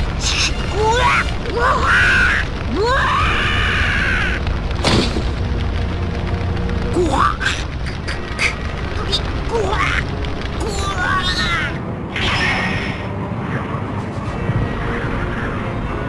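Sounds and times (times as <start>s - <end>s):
sharp crack: 0.0s - 11.5s
low rumble: 0.0s - 16.0s
music: 0.0s - 16.0s.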